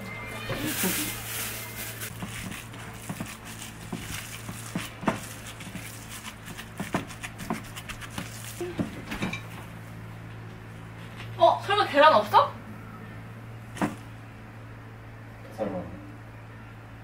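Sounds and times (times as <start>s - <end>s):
wet squishing of meat kneaded: 0.7s - 8.9s.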